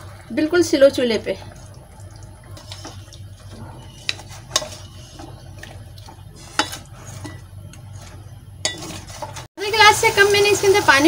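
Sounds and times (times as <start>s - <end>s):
steady low hum: 0.0s - 9.5s
faint frying sizzle: 0.0s - 11.0s
spatula stirring in a pan: 0.9s - 9.5s.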